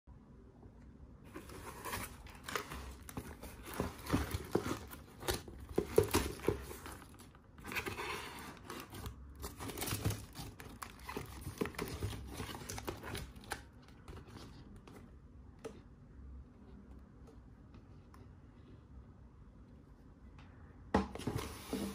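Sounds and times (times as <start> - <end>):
paper crinkling and rustling: 1.3 - 15.2.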